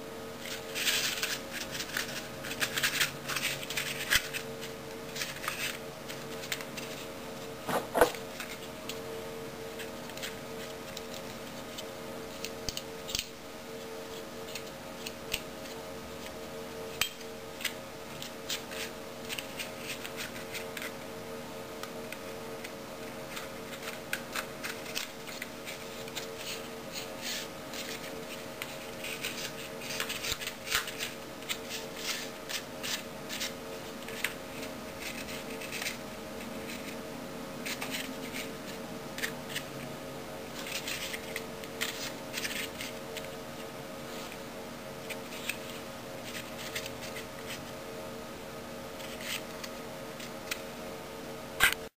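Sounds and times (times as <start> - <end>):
bark clicks and scrapes: 22.6 - 37.0, 37.6 - 39.7, 40.5 - 43.4, 49.0 - 50.6.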